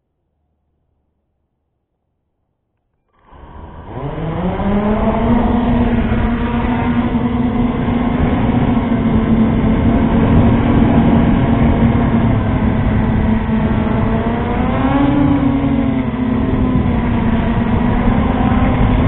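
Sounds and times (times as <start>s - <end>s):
drone motors and propellers whining: 3.2s - 19.0s
rushing noise: 3.2s - 19.0s.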